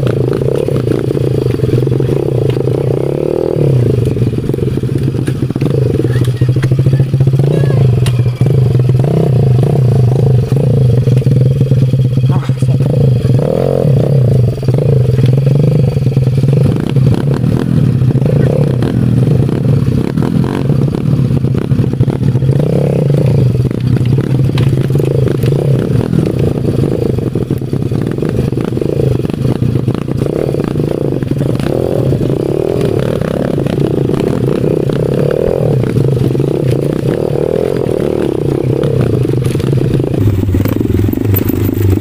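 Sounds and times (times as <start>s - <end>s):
small motorbike engine running: 0.0s - 42.0s
bike clattering over rough ground: 23.6s - 42.0s.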